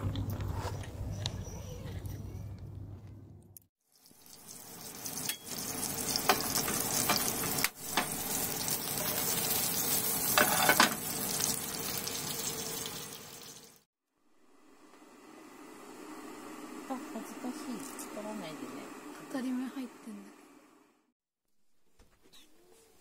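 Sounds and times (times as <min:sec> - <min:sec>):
sausages sizzling in oil: 0:03.9 - 0:19.9.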